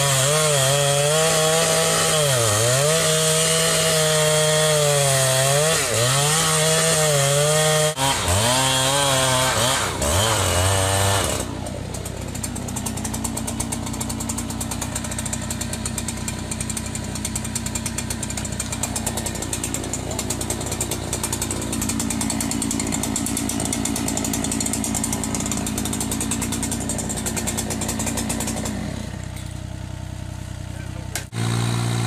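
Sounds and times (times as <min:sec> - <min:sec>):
chainsaw cutting log: 0:00.0 - 0:29.7, 0:30.9 - 0:32.0.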